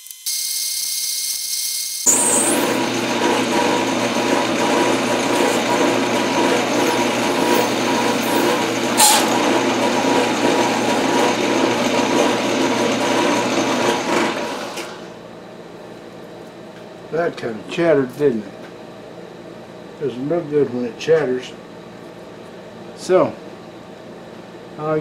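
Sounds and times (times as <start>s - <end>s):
metal lathe cutting with chatter: 2.0s - 15.2s.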